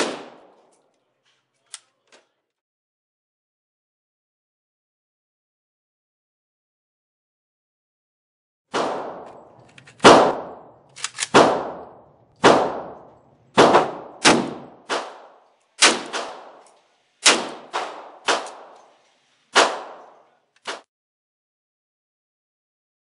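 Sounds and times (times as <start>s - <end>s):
rifle shots: 0.0s - 0.6s, 8.7s - 19.0s, 19.6s - 20.8s
echo of gunshots: 0.0s - 0.7s, 8.7s - 20.9s.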